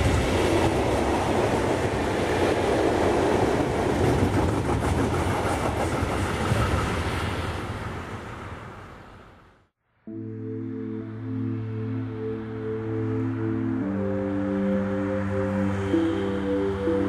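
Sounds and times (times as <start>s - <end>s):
freight train wheels on track: 0.0s - 9.2s.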